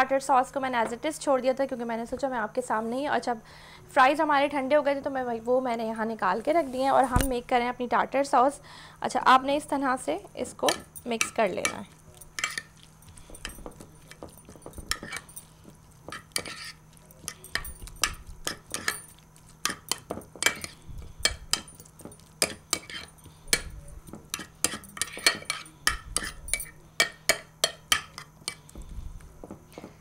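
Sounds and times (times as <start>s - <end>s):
spoon clinking against bowl: 10.7s - 12.7s, 16.1s - 28.6s.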